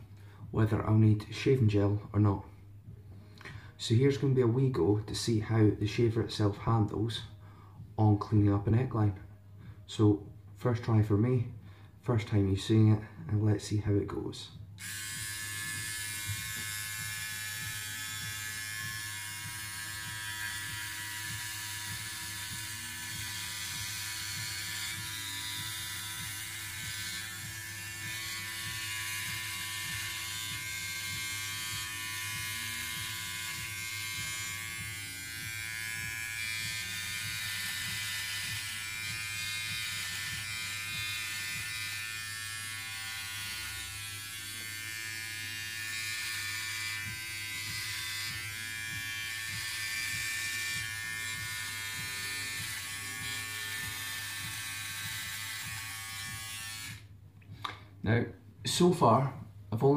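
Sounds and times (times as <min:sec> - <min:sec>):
electric shaver humming: 0:14.6 - 0:57.2.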